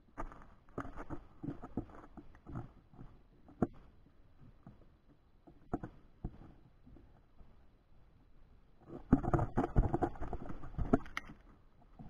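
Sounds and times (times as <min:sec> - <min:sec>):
animal crunching and scuffing: 0:00.2 - 0:02.7.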